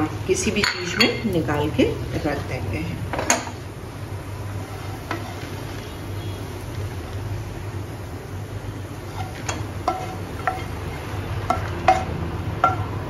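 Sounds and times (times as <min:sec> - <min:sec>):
wooden spatula scraping pan: 0:04.5 - 0:06.0, 0:09.0 - 0:12.2
spatula tapping pan: 0:09.1 - 0:13.0.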